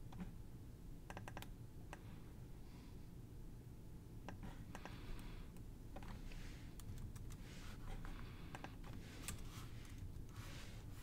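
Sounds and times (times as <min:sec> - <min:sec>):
low steady hum: 0:00.0 - 0:11.0
mouse and keyboard clicks: 0:01.1 - 0:01.5
soft hissy sounds: 0:04.3 - 0:11.0.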